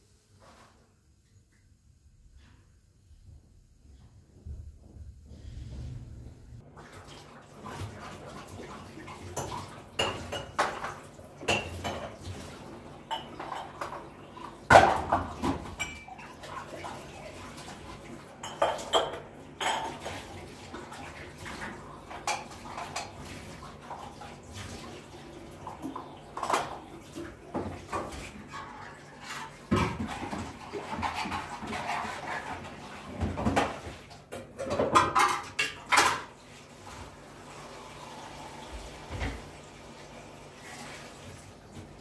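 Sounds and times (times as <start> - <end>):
dishes clattering: 9.0 - 12.4, 13.0 - 17.2, 18.3 - 20.4, 22.1 - 23.3, 27.5 - 36.4.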